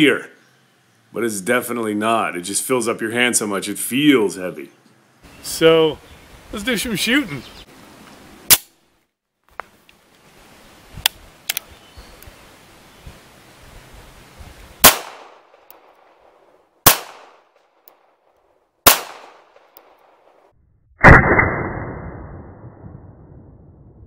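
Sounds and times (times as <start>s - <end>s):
pistol shots: 14.8s - 16.0s, 16.8s - 17.5s, 18.8s - 20.4s.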